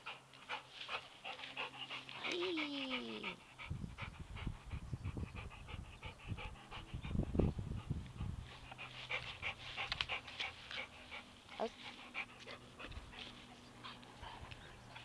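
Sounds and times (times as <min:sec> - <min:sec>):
dog panting fast: 0:00.0 - 0:15.0
low rumbles: 0:03.0 - 0:10.3.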